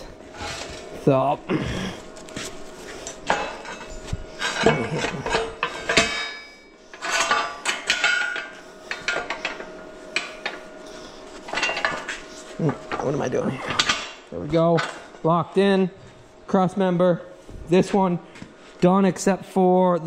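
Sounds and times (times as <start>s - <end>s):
steel plates clanking: 3.1s - 10.6s
short metallic rings: 3.3s - 10.5s.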